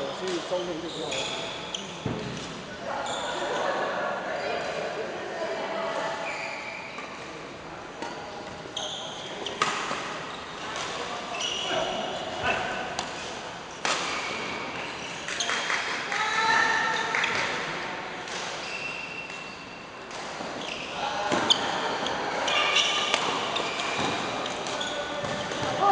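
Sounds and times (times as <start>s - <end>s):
voices in a hall: 0.0s - 25.9s.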